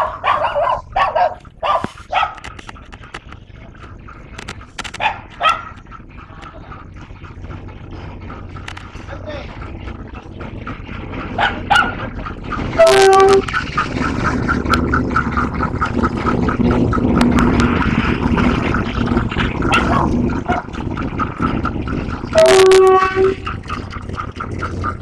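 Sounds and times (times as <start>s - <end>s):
diesel engine drone: 0.0s - 25.0s
train rumble: 0.0s - 25.0s
train horn blasts: 12.8s - 13.5s, 22.3s - 23.5s.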